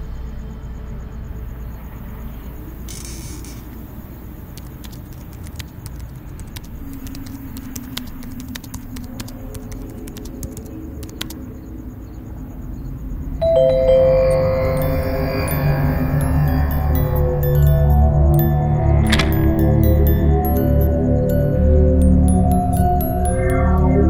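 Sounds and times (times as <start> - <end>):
faint clicks: 4.5 - 11.4
bell-like chime ringing: 13.4 - 24.0
low drone: 13.4 - 24.0
soft held tone: 13.4 - 24.0.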